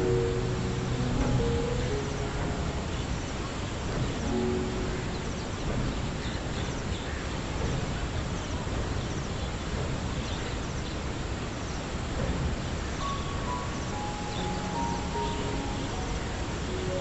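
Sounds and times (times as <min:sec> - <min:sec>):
birds chirping: 0:00.0 - 0:11.9, 0:12.8 - 0:17.0
steady outdoor background noise: 0:00.0 - 0:17.0.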